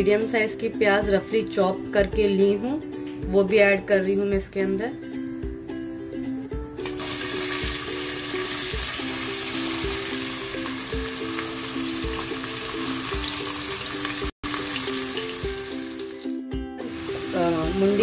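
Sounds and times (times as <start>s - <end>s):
soft background music: 0.0s - 18.0s
onions sizzling in hot oil: 6.8s - 18.0s.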